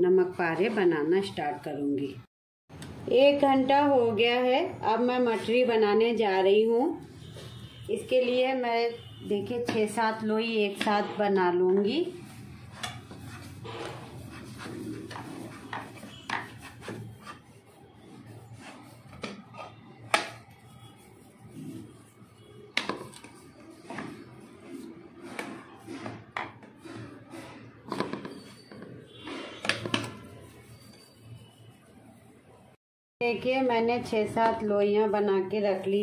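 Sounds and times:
soft rubbing of dough: 5.0s - 32.8s.

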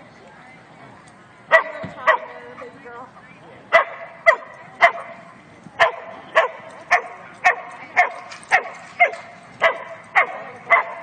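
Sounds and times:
dog barking: 3.7s - 5.2s, 5.8s - 11.0s.

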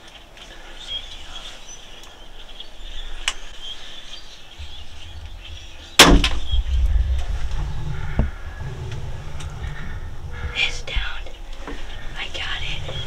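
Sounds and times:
loud low rumble: 4.6s - 13.0s
crossbow firing crack: 6.0s - 7.3s.

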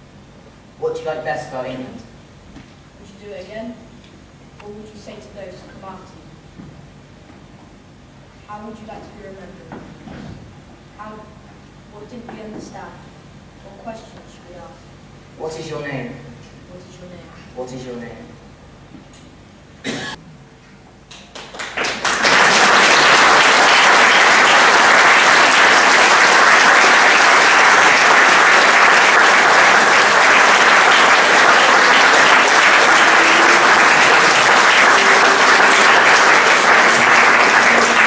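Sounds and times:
audience applauding: 21.1s - 38.0s.

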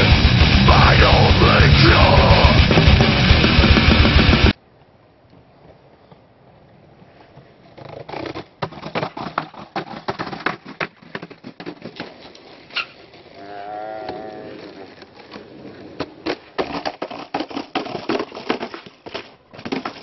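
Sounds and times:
skateboard clacking on concrete steps: 7.8s - 13.3s, 14.6s - 20.0s.

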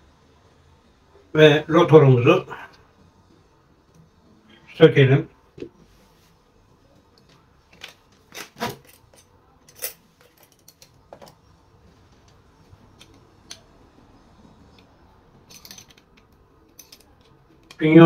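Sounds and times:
metallic clicks and clinks: 8.8s - 11.0s, 15.5s - 17.8s.

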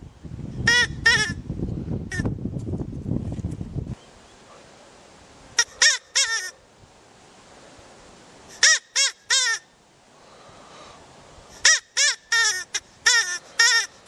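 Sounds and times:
rabbit calls: 5.6s - 6.6s, 8.5s - 9.7s, 11.6s - 14.0s.

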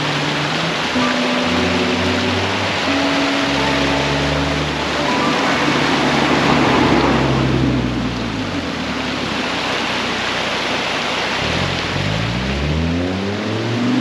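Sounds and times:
engine accelerating: 0.0s - 10.7s, 11.3s - 14.0s
steady rushing noise: 0.0s - 12.2s
vehicles passing: 0.0s - 14.0s.

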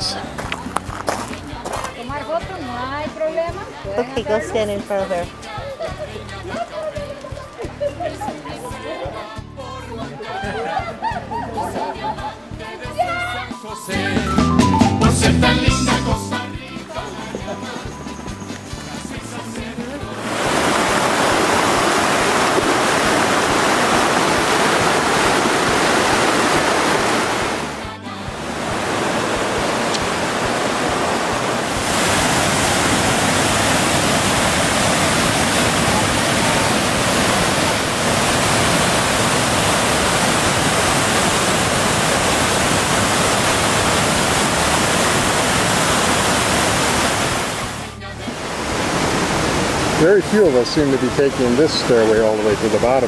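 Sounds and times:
water rushing over rocks: 18.9s - 53.0s
waterfall pouring into pool: 20.2s - 27.8s, 28.4s - 47.8s, 48.6s - 53.0s.

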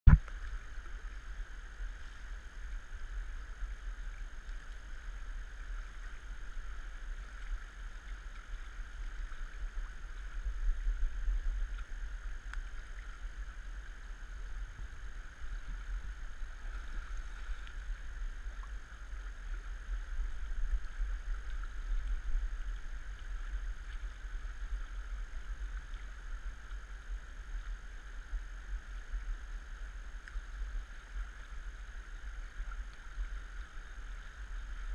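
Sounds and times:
flowing river: 0.1s - 34.9s
low uneven rumble: 0.1s - 34.9s.

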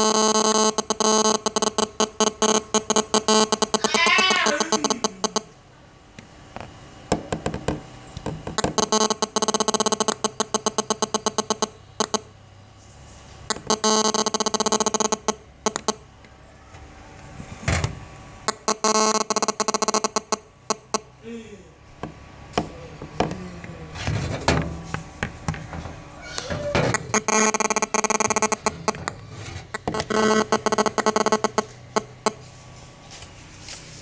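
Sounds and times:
buzzy pulsing electronic tone: 0.0s - 5.5s, 27.0s - 32.5s.

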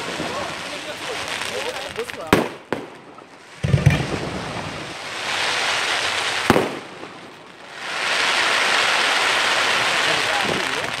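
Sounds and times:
crackling hiss of firework stars: 0.0s - 11.0s
firework shells booming: 2.2s - 7.5s.

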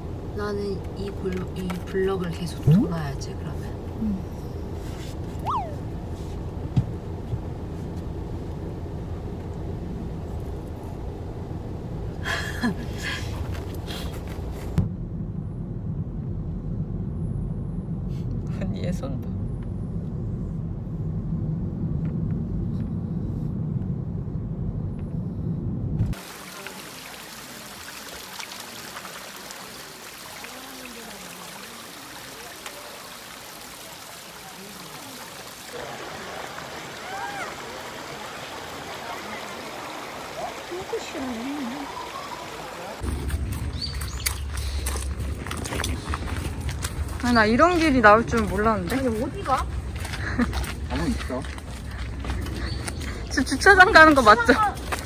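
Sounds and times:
car cabin rumble: 0.0s - 26.2s
stream flowing over rocks: 26.1s - 47.5s.

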